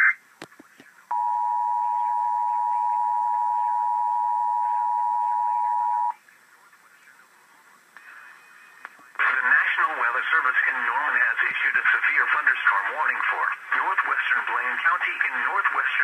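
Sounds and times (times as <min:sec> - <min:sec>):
two-tone alert signal: 0:01.1 - 0:06.2.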